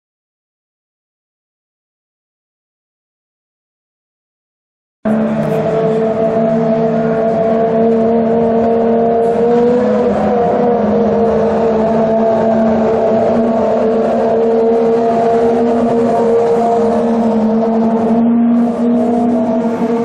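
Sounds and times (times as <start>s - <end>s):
race car engines at low revs: 5.1s - 20.0s.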